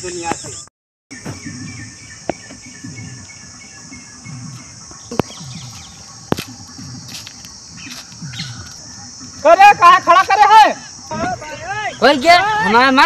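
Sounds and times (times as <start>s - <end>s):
birds calling: 0.0s - 13.0s
high insect drone: 0.0s - 13.0s.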